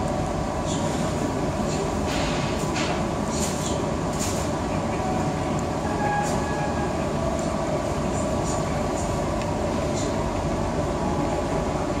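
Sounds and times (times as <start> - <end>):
train coach rumble and hum: 0.0 - 12.0.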